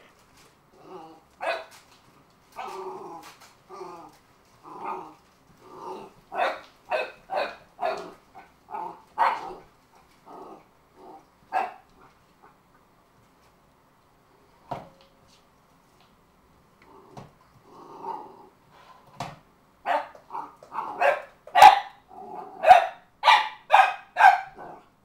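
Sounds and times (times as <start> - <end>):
puppy barking: 1.4 - 1.8, 6.3 - 9.6, 11.5 - 11.9, 19.8 - 22.0, 22.6 - 24.8.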